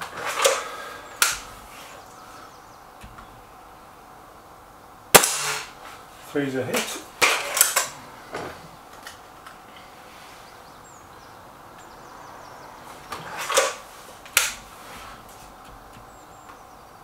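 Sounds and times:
air rifle shot crack: 0:05.1 - 0:05.8.

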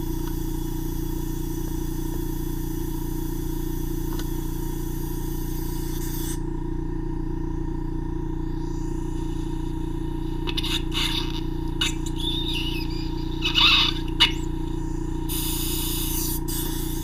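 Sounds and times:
suction unit motor hum: 0:00.0 - 0:17.0
high airflow hiss: 0:15.3 - 0:17.0.

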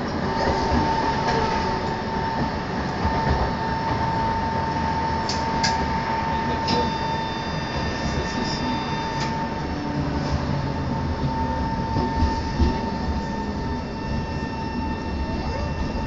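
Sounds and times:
constant high whine: 0:00.0 - 0:16.0
tram wheels rumbling on rails: 0:00.0 - 0:16.0.

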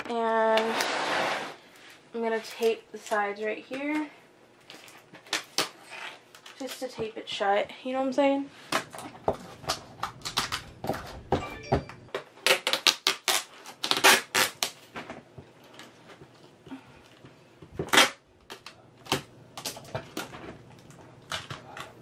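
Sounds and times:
tape ripping off roll: 0:12.4 - 0:15.2, 0:17.8 - 0:19.8.

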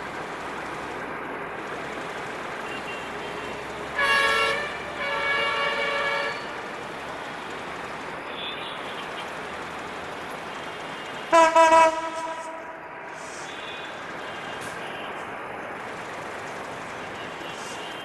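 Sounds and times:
train rumble: 0:00.0 - 0:18.0
locomotive air horn: 0:02.7 - 0:06.6, 0:11.2 - 0:15.2.

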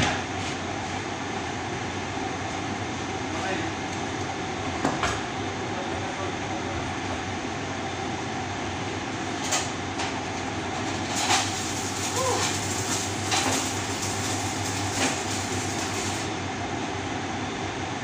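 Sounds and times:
low mains hum: 0:00.0 - 0:18.0
arc welding: 0:09.2 - 0:16.3
machine whirring: 0:10.3 - 0:16.4.

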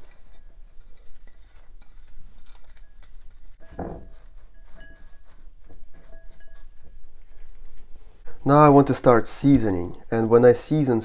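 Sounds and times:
soft rustling: 0:00.0 - 0:08.6
thump: 0:03.7 - 0:04.1.

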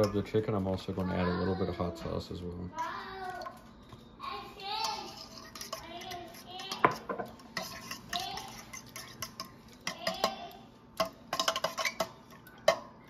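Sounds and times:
fork clicking and scraping bowl: 0:00.0 - 0:00.3, 0:04.8 - 0:12.8.

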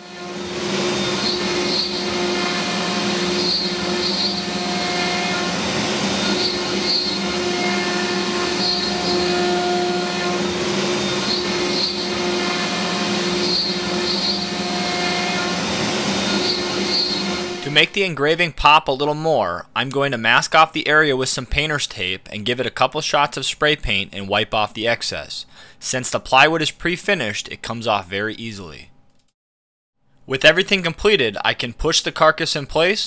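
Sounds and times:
router spindle whine: 0:00.0 - 0:17.8.

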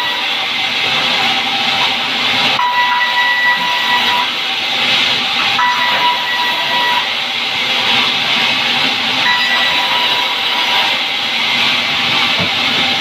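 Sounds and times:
band saw cutting a log: 0:00.0 - 0:13.0
thin high whine: 0:02.5 - 0:11.2.

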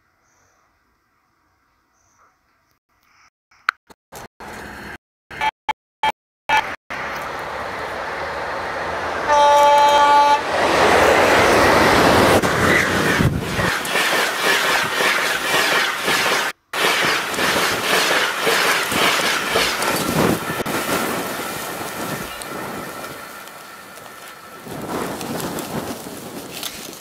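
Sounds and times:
train rushing past: 0:06.9 - 0:26.7
train horn blast: 0:09.2 - 0:10.6
wheels clattering over rail joints: 0:10.7 - 0:27.0.

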